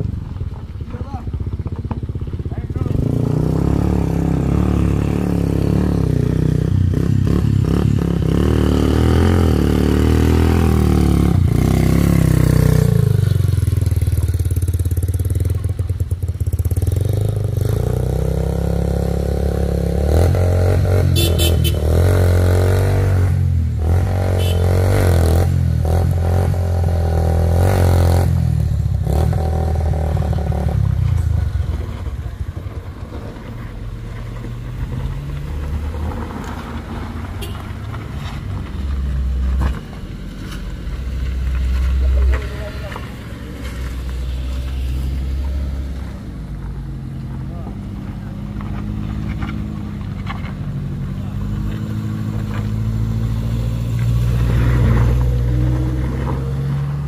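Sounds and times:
vehicle engines labouring uphill: 0:00.0 - 0:57.0.

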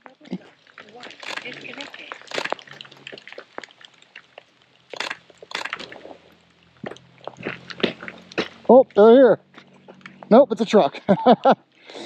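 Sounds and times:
rain spattering on microphone: 0:00.0 - 0:09.1
hissing bursts: 0:01.2 - 0:03.6, 0:04.7 - 0:06.4.

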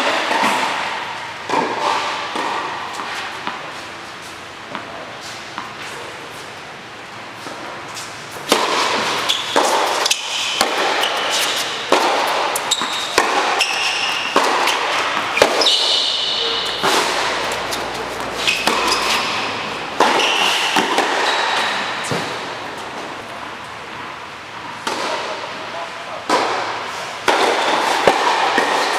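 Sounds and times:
tennis ball struck with racquets: 0:00.1 - 0:05.9, 0:07.4 - 0:23.2, 0:23.9 - 0:25.6, 0:26.2 - 0:28.9
shoe squeaks on court: 0:09.1 - 0:11.8, 0:12.4 - 0:22.0.

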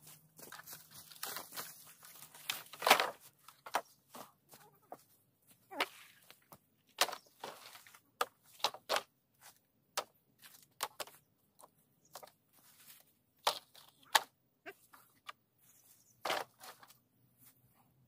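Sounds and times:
dry leaves and twigs crunching: 0:00.0 - 0:17.6
bamboo poles knocking together: 0:02.3 - 0:04.6, 0:05.8 - 0:09.1, 0:09.9 - 0:12.4, 0:13.4 - 0:14.4, 0:16.2 - 0:16.9.

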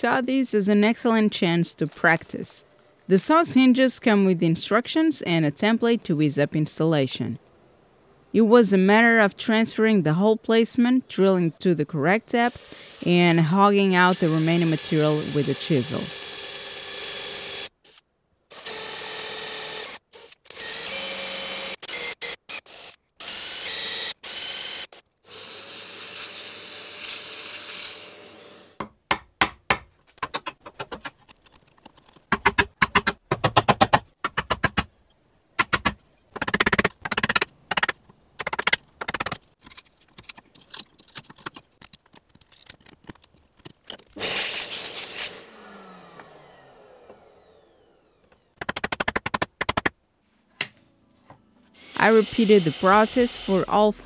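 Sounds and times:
drill boring into wood: 0:12.5 - 0:13.1, 0:13.9 - 0:17.7, 0:18.5 - 0:28.8, 0:44.2 - 0:48.2, 0:51.8 - 0:53.7.

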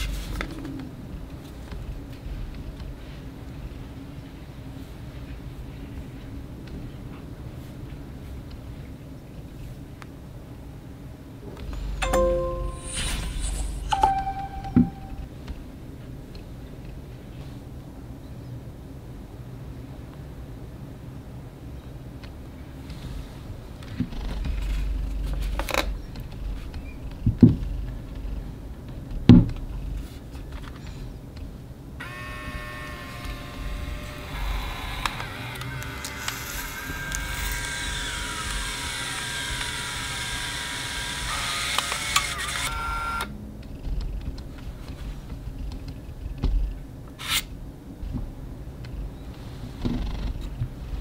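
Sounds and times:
steady held tones: 0:12.0 - 0:15.3
printer motor whirring: 0:32.0 - 0:43.3.

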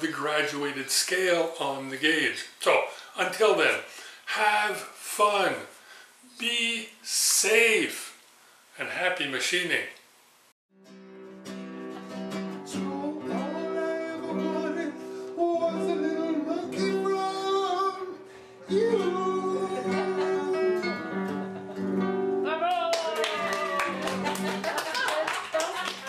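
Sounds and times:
guitar accompaniment: 0:10.8 - 0:26.0
man singing: 0:12.7 - 0:21.3.

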